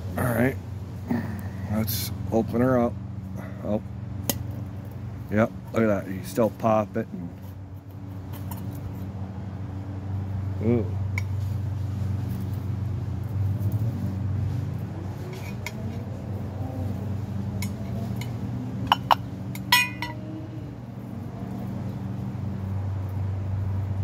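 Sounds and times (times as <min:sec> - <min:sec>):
steady low hum: 0:00.0 - 0:24.0
metal tin clinking: 0:18.9 - 0:20.2
ringing metal rattle: 0:19.5 - 0:20.3.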